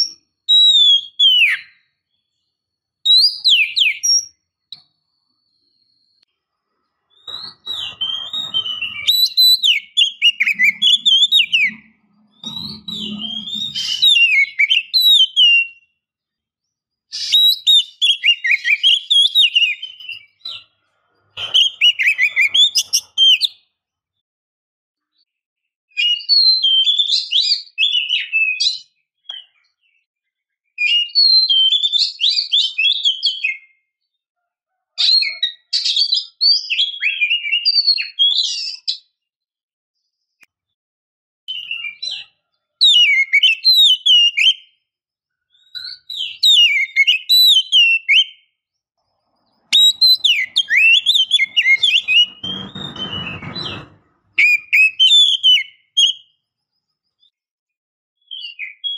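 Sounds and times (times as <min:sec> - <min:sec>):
bird whistled warbling: 0:07.1 - 0:15.8, 0:17.1 - 0:20.4, 0:21.4 - 0:23.6, 0:49.7 - 0:53.7, 0:54.4 - 0:56.3.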